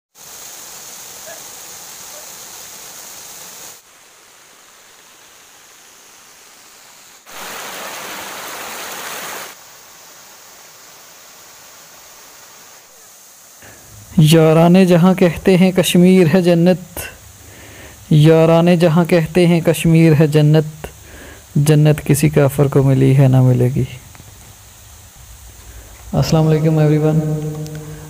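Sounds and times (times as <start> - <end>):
waterfall rushing: 0.2 - 28.0.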